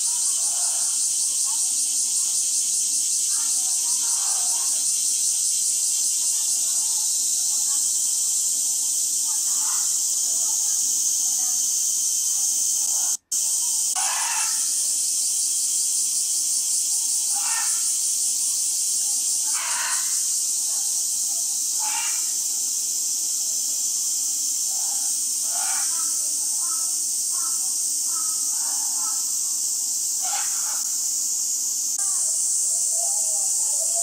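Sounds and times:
high-pitched background hiss: 0.0 - 34.0
distant call or voice: 19.4 - 20.2.

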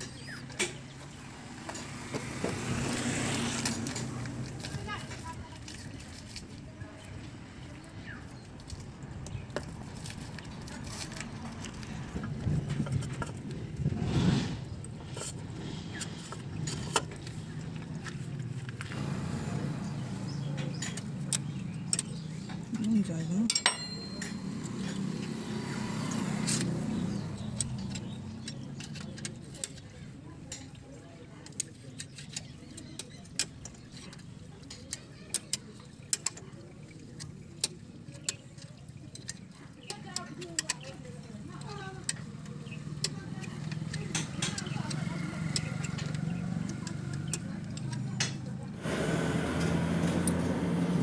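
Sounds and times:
engine running low hum: 0.0 - 30.4, 41.0 - 51.0
metal tools clicking and tapping: 20.3 - 25.4, 26.1 - 48.8.

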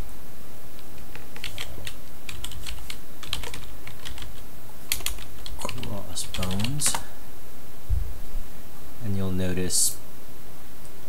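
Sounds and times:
computer keyboard keys clicking: 1.0 - 7.0.

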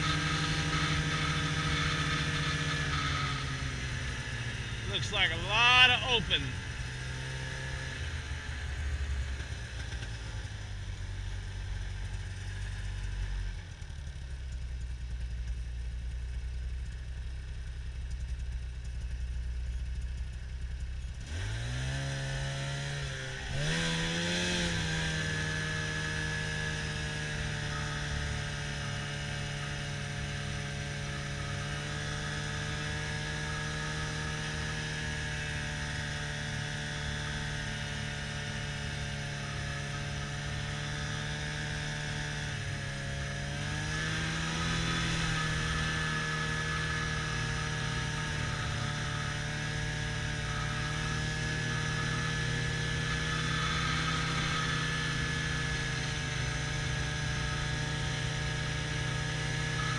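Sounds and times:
snowmobile engine revving: 0.0 - 8.3, 21.2 - 59.9.

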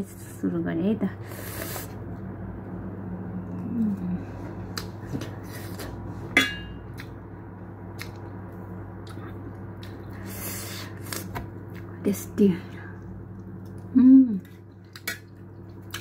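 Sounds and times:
steady low hum: 0.0 - 16.0
woman chewing food: 6.9 - 11.9, 13.3 - 16.0.

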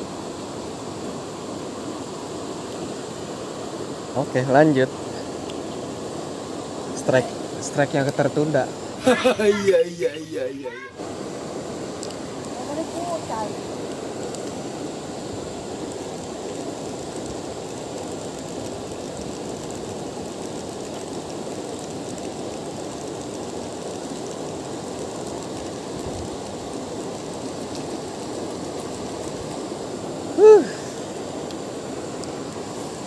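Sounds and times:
river water flowing over rocks: 9.9 - 33.0.

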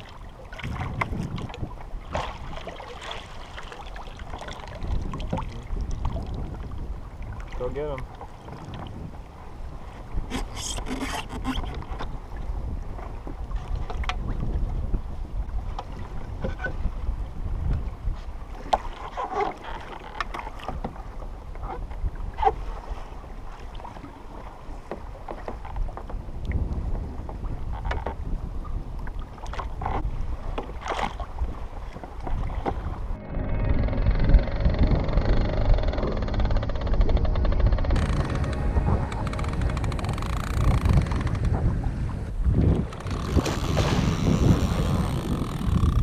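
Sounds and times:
water against hull: 0.0 - 46.0
wind buffeting microphone: 0.0 - 46.0
fishing gear knocks and clicks: 39.2 - 41.6.

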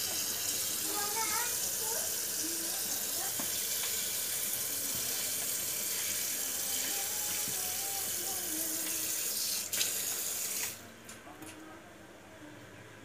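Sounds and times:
tap water splashing into sink: 2.8 - 6.1, 8.7 - 10.8.

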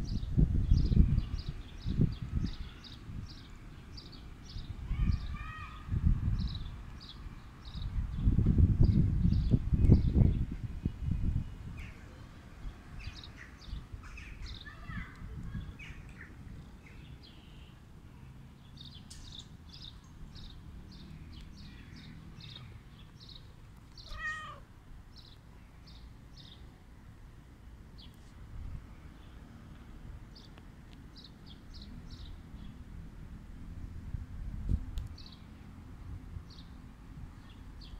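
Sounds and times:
cat meowing: 24.0 - 24.6.

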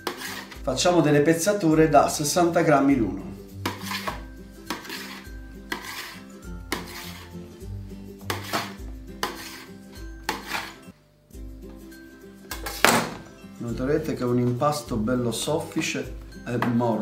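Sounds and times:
knife chopping on steel worktop: 0.0 - 0.6, 3.6 - 7.3, 8.2 - 10.8, 12.5 - 13.3.

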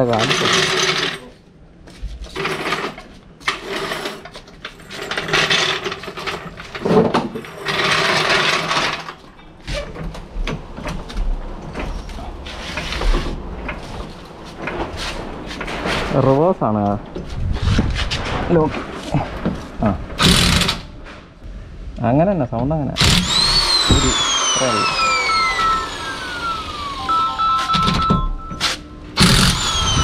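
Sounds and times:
impact wrench rattling: 20.2 - 20.8, 23.0 - 26.4, 29.2 - 30.0.

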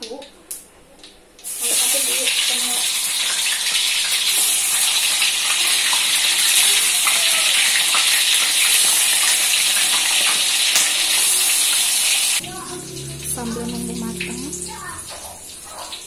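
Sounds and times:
oil crackling and popping: 1.0 - 12.4
tofu sizzling in hot oil: 1.4 - 12.4.

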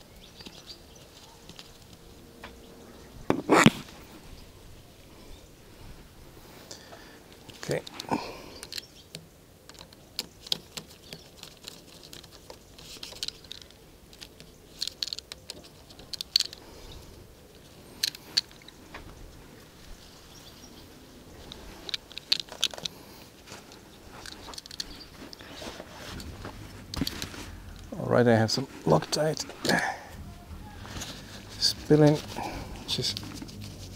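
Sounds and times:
glove crinkling: 21.4 - 33.9.

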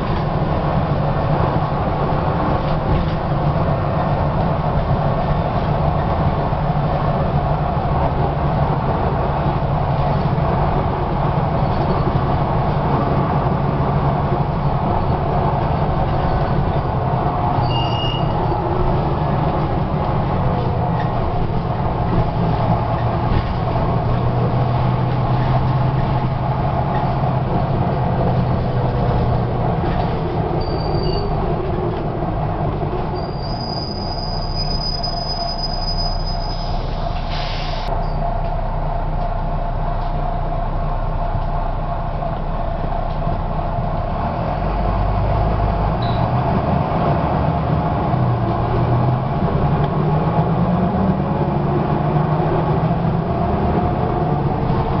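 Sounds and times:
bus body rattle: 0.0 - 37.3
bus diesel engine droning: 0.0 - 55.0
road rumble: 0.0 - 55.0.

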